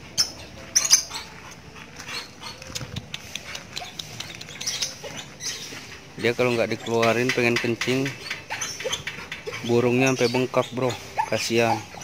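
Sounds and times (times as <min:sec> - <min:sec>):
dog clicks and scuffs on concrete: 0:00.7 - 0:05.9, 0:06.8 - 0:09.8.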